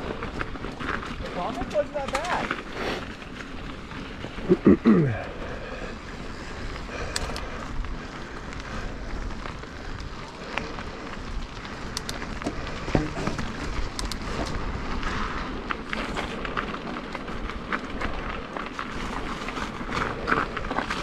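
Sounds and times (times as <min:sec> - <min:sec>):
bike tyres rolling on dirt: 0:00.0 - 0:21.0
bike clicks and knocks: 0:09.4 - 0:21.0.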